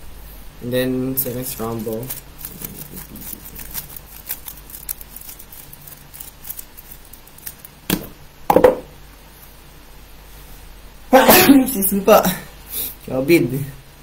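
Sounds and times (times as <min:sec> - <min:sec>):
loud thump: 0:07.9 - 0:08.9.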